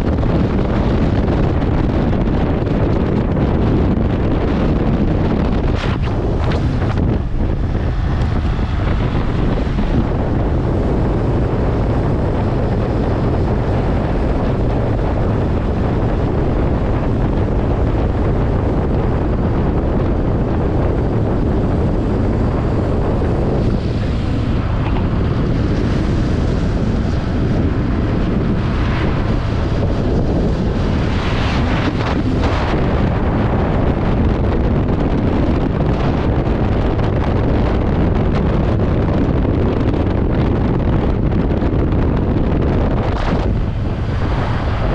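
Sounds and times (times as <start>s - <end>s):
wind buffeting microphone: 0.0s - 44.9s
motorcycle engine running: 5.6s - 34.2s.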